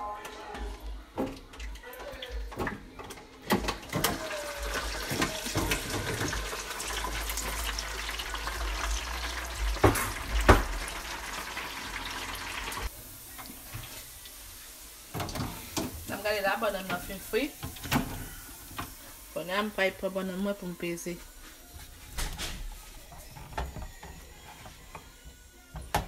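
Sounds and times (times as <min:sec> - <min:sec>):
hot fat crackling in fryer: 0:04.0 - 0:16.6.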